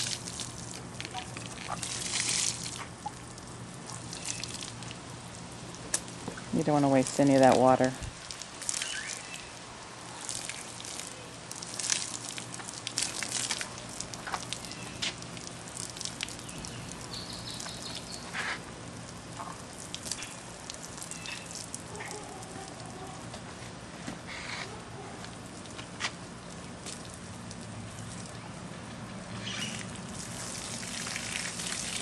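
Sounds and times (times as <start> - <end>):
water sprinkling onto soil and leaves: 0.0 - 23.0, 25.3 - 32.0.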